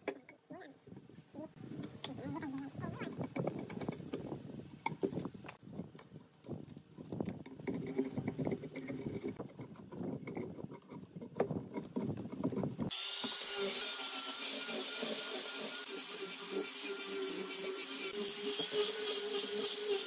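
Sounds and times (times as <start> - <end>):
chisel scraping bark: 7.2 - 12.9
angle grinder sanding wood: 12.9 - 20.0.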